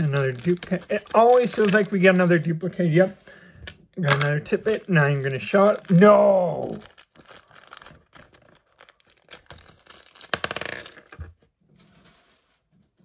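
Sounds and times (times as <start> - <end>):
toy packaging tearing and crinkling: 0.0 - 2.6, 4.0 - 11.3.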